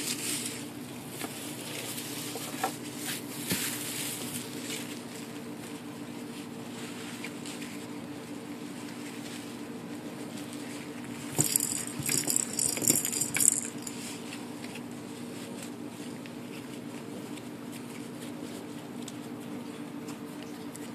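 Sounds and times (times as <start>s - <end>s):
foil tinsel crinkling and rattling: 0.0s - 16.2s
steady low hum: 0.0s - 17.7s.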